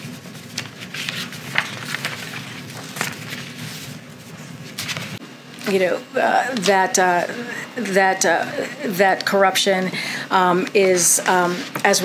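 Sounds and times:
paper rustling: 0.0s - 5.8s, 10.6s - 12.0s
low room hum: 0.0s - 12.0s.

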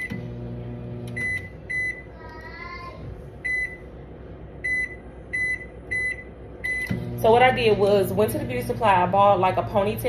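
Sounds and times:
microwave keypad beeps: 0.0s - 0.2s, 1.1s - 2.1s, 3.4s - 3.8s, 4.6s - 7.0s.

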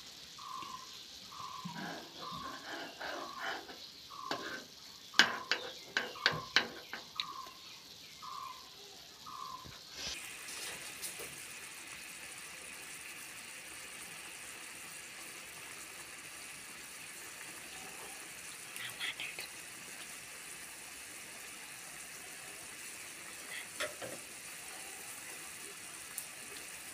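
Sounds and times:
pot boiling with bubbling hiss: 0.0s - 26.9s.

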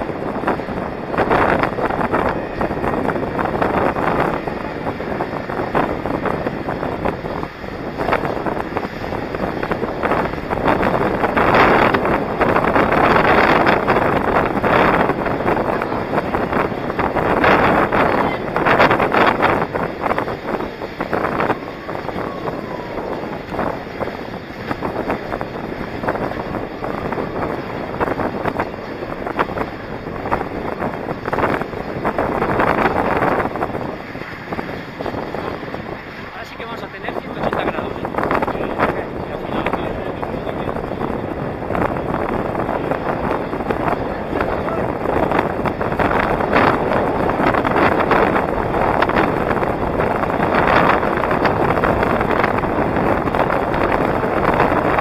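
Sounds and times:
wheels scraping on road: 0.0s - 40.2s
skate wheels rolling on asphalt: 0.0s - 55.0s
wind buffeting microphone: 0.0s - 55.0s.

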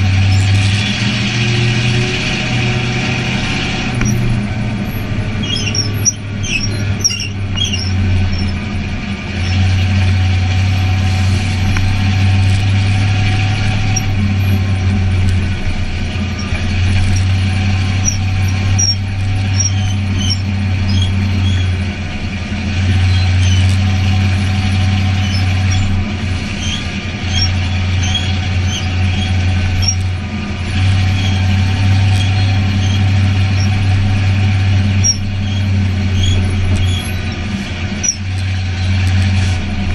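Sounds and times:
race car engine at high revs: 0.0s - 39.9s.

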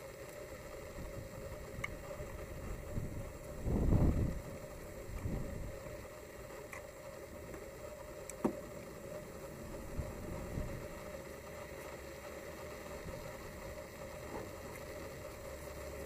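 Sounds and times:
steady background noise: 0.0s - 16.0s.

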